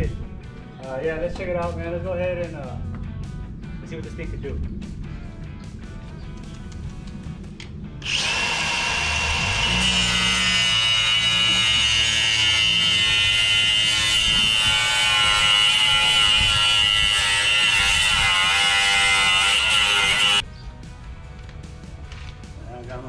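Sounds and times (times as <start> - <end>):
angle grinder whine: 8.0 - 20.4
grinder cutting steel: 8.0 - 20.4.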